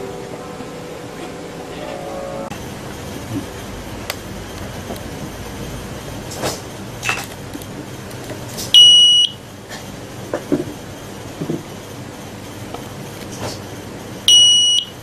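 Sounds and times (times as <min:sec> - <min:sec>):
high-pitched buzzer beep: 0:08.8 - 0:09.4, 0:14.3 - 0:15.0.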